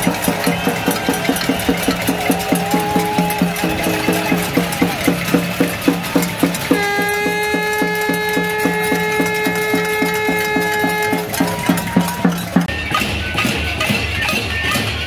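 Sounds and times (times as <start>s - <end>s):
horn note: 3.6s - 5.0s, 6.2s - 12.4s.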